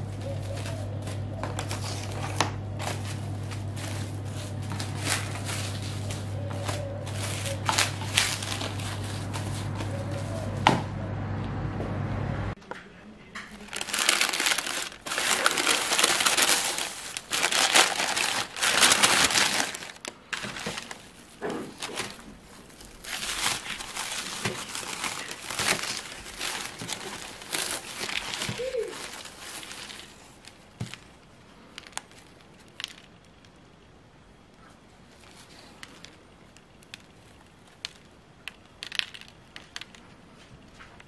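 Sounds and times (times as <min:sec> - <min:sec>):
cling film crinkling: 0:00.0 - 0:10.7, 0:13.4 - 0:33.6
plastic bag and paper crinkling: 0:00.0 - 0:10.7, 0:13.4 - 0:33.5, 0:35.0 - 0:41.0.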